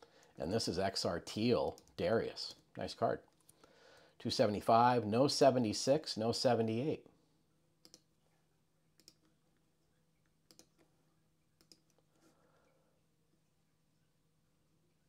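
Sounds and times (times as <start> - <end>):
computer mouse clicks: 7.8 - 8.1, 9.0 - 9.4, 10.5 - 10.9, 11.6 - 12.1.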